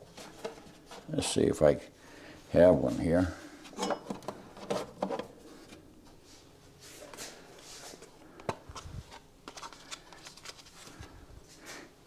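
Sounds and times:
rustling of rummaging: 0:00.0 - 0:01.4.

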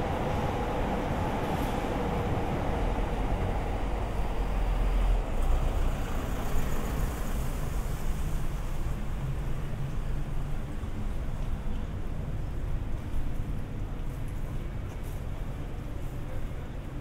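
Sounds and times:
low rumble of passing traffic: 0:00.0 - 0:12.9.

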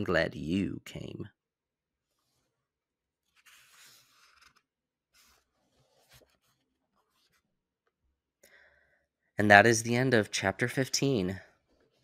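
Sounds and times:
book pages rustling: 0:02.0 - 0:07.6.

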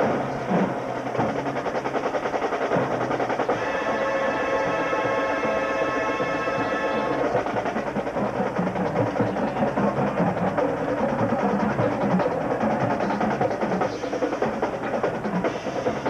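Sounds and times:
fast marching drums: 0:00.0 - 0:16.0
brass chord: 0:03.5 - 0:07.4.

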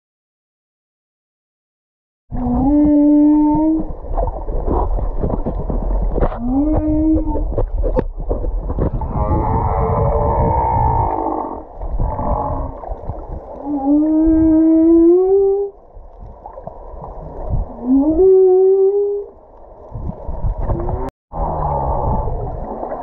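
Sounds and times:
whale calls underwater: 0:02.3 - 0:05.0, 0:06.2 - 0:08.0, 0:08.9 - 0:15.8, 0:17.5 - 0:19.4, 0:20.6 - 0:23.0
low underwater rumble: 0:02.3 - 0:23.0.

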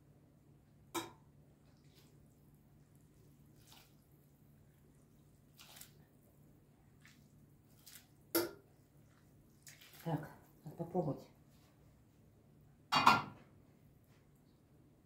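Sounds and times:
faint steady hum: 0:00.0 - 0:15.0
soft scrapes and splashes: 0:01.6 - 0:10.7.

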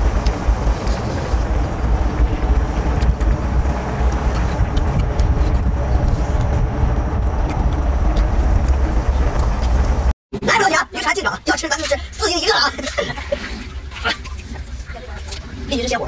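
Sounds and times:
wind buffeting microphone: 0:00.0 - 0:10.1.

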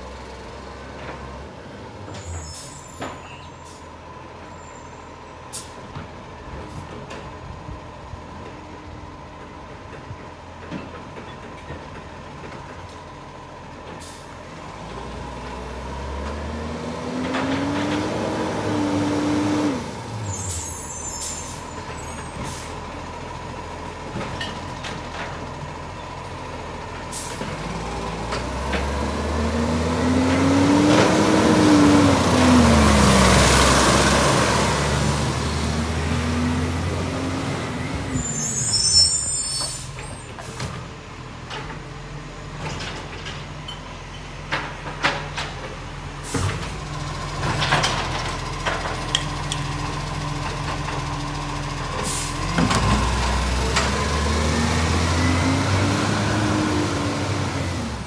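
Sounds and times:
truck diesel engine revving: 0:14.6 - 0:20.3, 0:27.0 - 0:38.2, 0:46.4 - 0:58.0
air brake hisses: 0:52.0 - 0:52.4.

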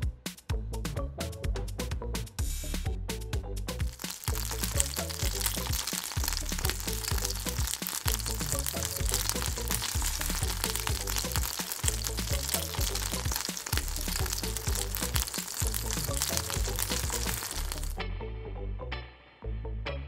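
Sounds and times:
background music with a beat: 0:00.0 - 0:18.5
dough sizzling in hot oil: 0:03.8 - 0:18.0.

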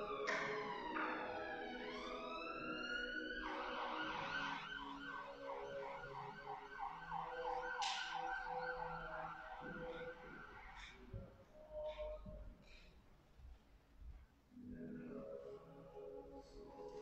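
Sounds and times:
emergency vehicle siren: 0:00.0 - 0:12.3.

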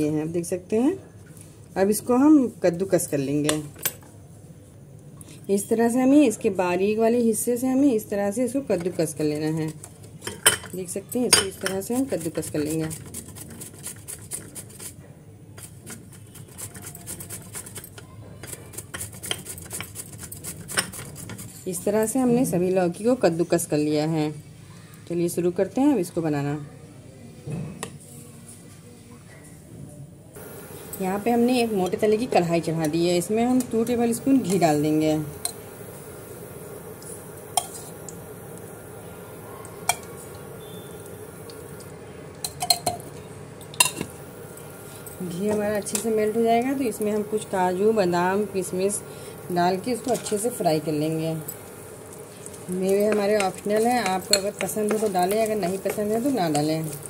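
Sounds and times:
steady low hum: 0:30.4 - 0:57.0
utensil clicking against a pan: 0:51.5 - 0:57.0.

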